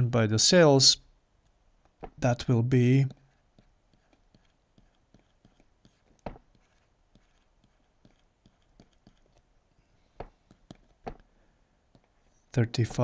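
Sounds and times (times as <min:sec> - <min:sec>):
stylus tapping on tablet: 0:03.5 - 0:09.5, 0:10.2 - 0:11.3.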